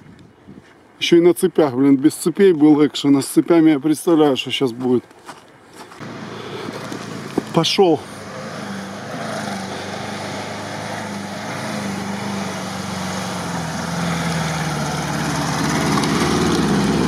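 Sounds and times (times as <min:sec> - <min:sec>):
car engine running under load: 0:06.0 - 0:17.0.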